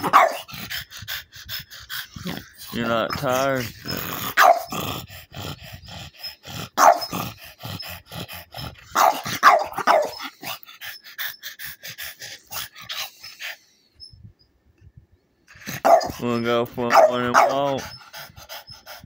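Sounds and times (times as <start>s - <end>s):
dog barking: 0.0s - 0.5s, 4.4s - 4.7s, 6.8s - 7.1s, 9.0s - 10.2s, 15.8s - 16.2s, 16.9s - 17.7s
dog panting: 0.0s - 13.8s, 15.5s - 19.0s.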